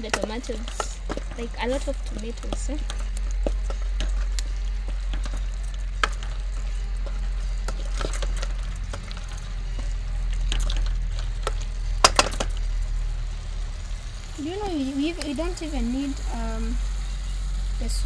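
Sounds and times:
wet squelching stirring: 0.0s - 13.4s
low rumble: 0.0s - 18.0s.

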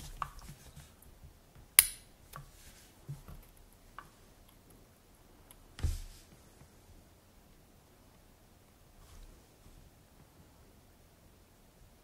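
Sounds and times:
sharp click: 1.8s - 2.1s.

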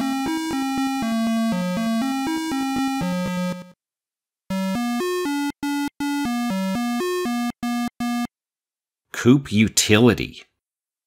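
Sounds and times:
synthesizer game music: 0.0s - 3.8s, 4.5s - 8.3s.

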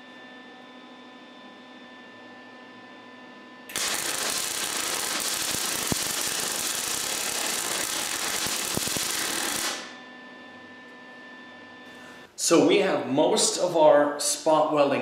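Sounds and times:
welder arc crackling: 3.7s - 10.0s.

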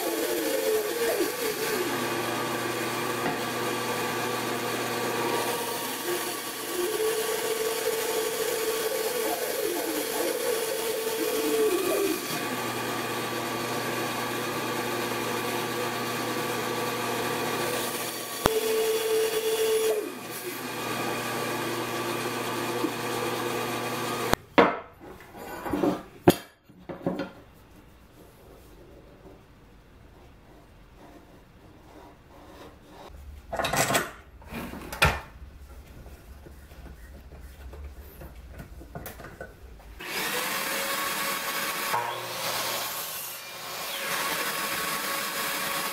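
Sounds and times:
bandsaw cutting plywood: 0.0s - 24.4s, 40.0s - 45.9s.

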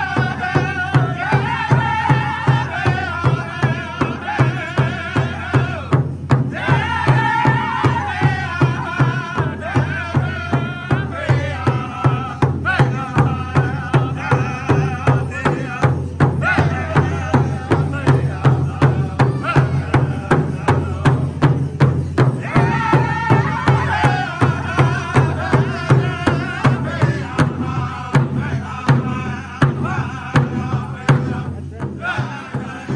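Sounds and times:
high-pitched group singing: 0.0s - 32.9s
large hand drum beating: 0.0s - 32.9s.

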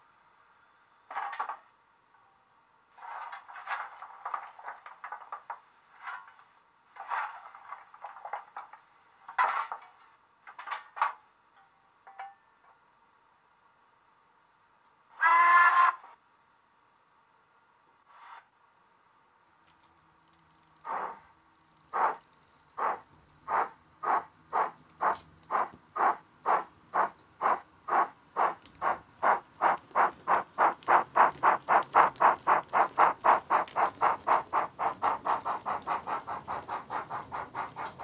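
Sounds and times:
faint steam hiss: 0.0s - 15.3s, 16.0s - 38.0s
steam locomotive exhaust chuffs: 20.8s - 38.0s.

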